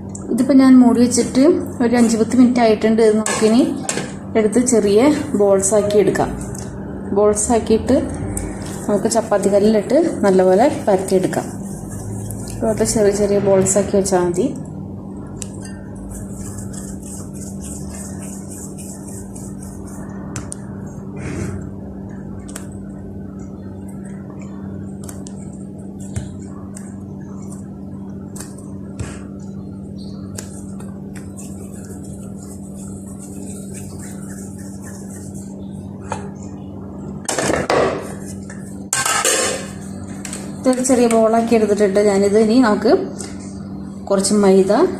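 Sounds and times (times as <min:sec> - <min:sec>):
steady background hum: 0:00.0 - 0:44.9
dough being rolled by hand: 0:08.5 - 0:14.4, 0:15.2 - 0:21.1, 0:23.9 - 0:36.6.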